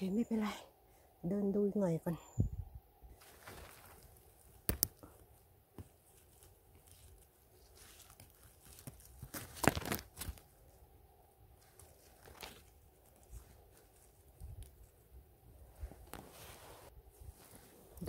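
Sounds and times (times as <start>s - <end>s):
leaf litter and twigs crackling: 3.1s - 18.0s
twigs snapping: 3.2s - 10.8s, 11.5s - 15.2s.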